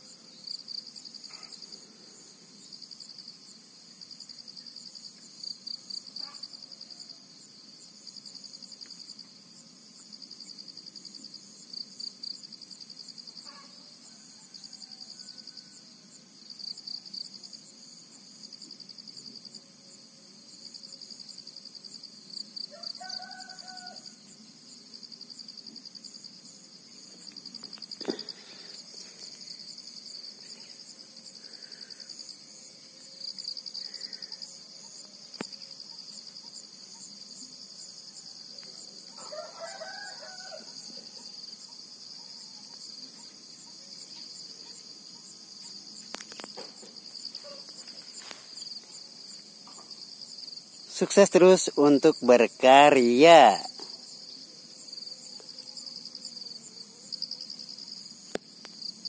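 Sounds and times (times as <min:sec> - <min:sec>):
high-pitched pulsing insect chorus: 0:00.0 - 0:59.0
rooster crowing: 0:14.0 - 0:15.9, 0:22.7 - 0:24.2, 0:39.1 - 0:41.4.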